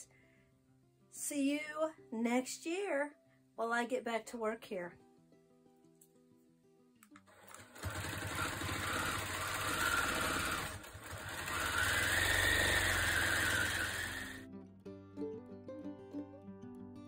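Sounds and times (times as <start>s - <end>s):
quilting machine stitching fast: 7.3s - 14.4s.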